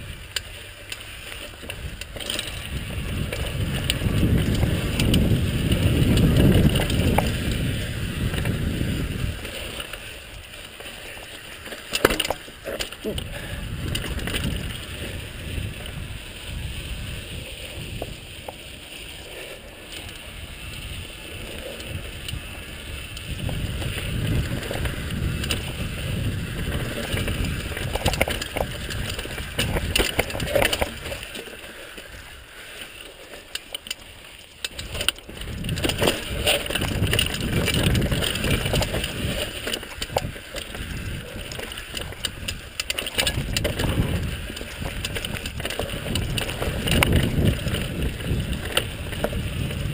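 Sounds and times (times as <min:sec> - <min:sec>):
bike rattling: 0:00.0 - 0:49.9
bike tyres rumbling over gravel: 0:00.0 - 0:49.9
wind on microphone: 0:01.7 - 0:09.8, 0:13.0 - 0:18.5, 0:20.4 - 0:31.3, 0:34.7 - 0:49.9.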